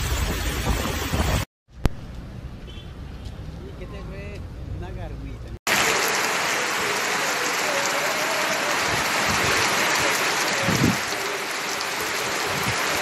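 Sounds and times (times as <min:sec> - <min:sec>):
heavy rain pouring: 0:05.7 - 0:13.0.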